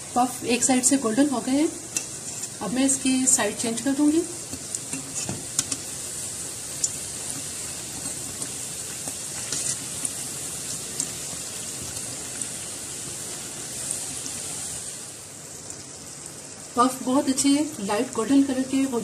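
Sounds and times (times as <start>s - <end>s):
dough deep-frying in oil: 0.0s - 19.0s
oil crackling and popping: 3.9s - 16.8s.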